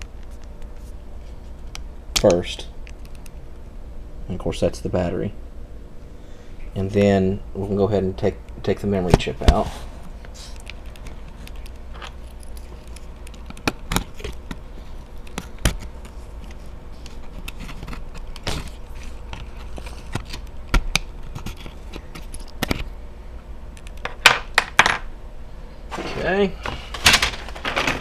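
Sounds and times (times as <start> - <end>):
small clicks and light scrapes: 0.0 - 3.6, 10.2 - 22.9
steady low hum: 0.0 - 28.0.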